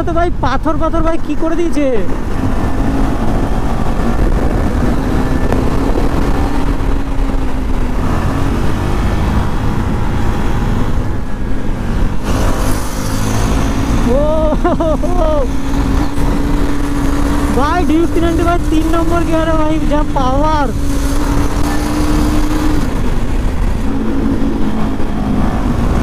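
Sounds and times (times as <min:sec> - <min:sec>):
wind rumbling on microphone: 0:00.0 - 0:26.0
motorcycle engine running: 0:08.8 - 0:26.0.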